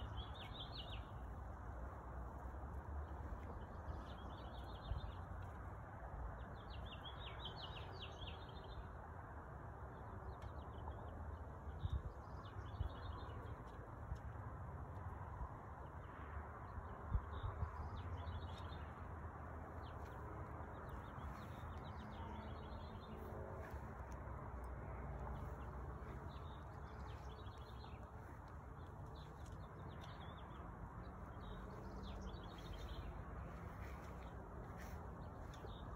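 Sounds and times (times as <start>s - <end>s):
low outdoor rumble: 11.6s - 35.9s
small birds chirping: 17.3s - 35.9s.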